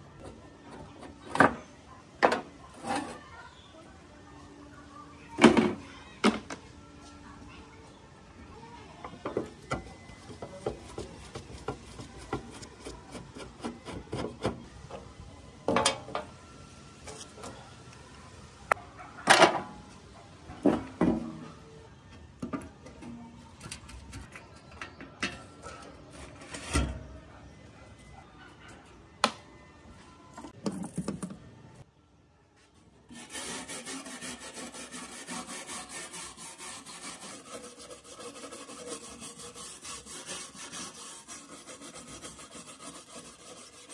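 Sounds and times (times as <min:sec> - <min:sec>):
wire brush scrubbing metal: 0:33.1 - 0:43.9.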